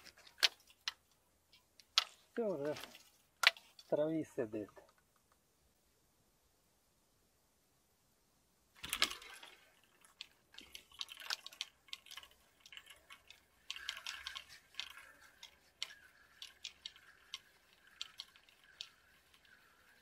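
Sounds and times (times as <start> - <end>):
faint steady whine: 0.0 - 20.0
fishing reel clicking: 8.8 - 20.0.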